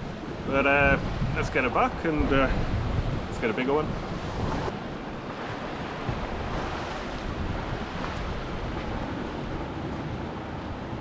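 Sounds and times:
surf washing over rocks: 0:00.0 - 0:11.0
wind buffeting microphone: 0:00.0 - 0:11.0.

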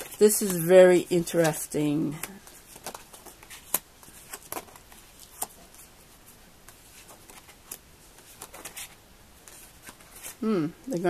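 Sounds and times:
cards clicking and snapping: 0:01.4 - 0:05.8, 0:06.7 - 0:10.4.

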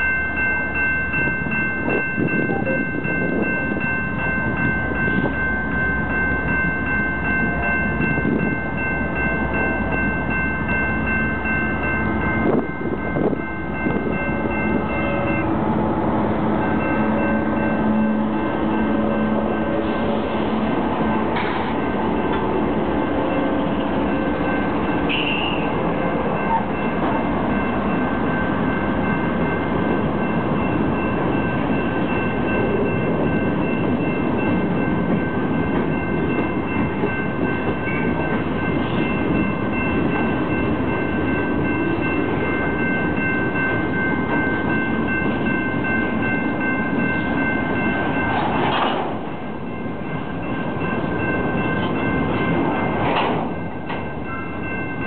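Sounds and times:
train wheels clattering on rails: 0:16.5 - 0:55.0.

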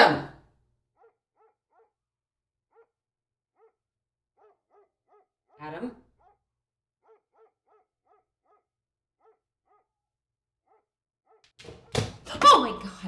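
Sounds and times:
distant dog barking: 0:01.0 - 0:02.0, 0:02.7 - 0:03.0, 0:03.6 - 0:03.8, 0:04.4 - 0:05.6, 0:06.2 - 0:10.0.

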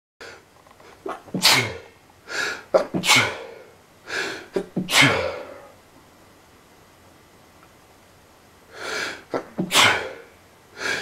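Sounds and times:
man sneezing: 0:01.1 - 0:01.9, 0:02.7 - 0:03.6, 0:04.6 - 0:05.7, 0:09.3 - 0:10.3
sharp gasping in-breath: 0:08.7 - 0:09.2, 0:10.8 - 0:11.0.

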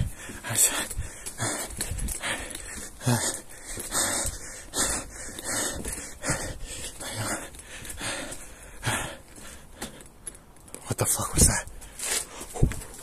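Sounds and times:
heavy rhythmic panting: 0:00.0 - 0:10.3.

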